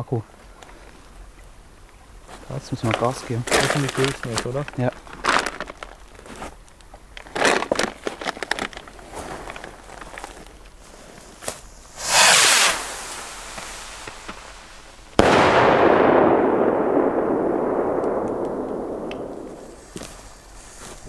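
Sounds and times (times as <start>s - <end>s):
firework rocket whoosh: 11.8s - 20.8s
firework bang with rumbling echo: 15.2s - 20.4s.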